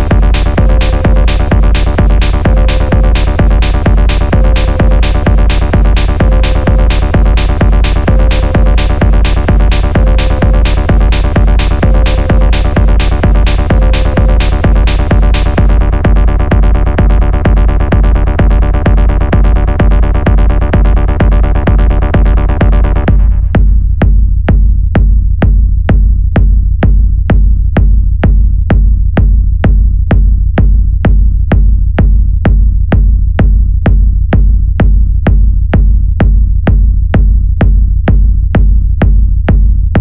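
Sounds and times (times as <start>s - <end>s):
sustained synthesizer chord: 0.0s - 15.9s
deep bass: 0.0s - 40.0s
electronic dance music: 0.0s - 40.0s
techno kick drum: 0.0s - 40.0s.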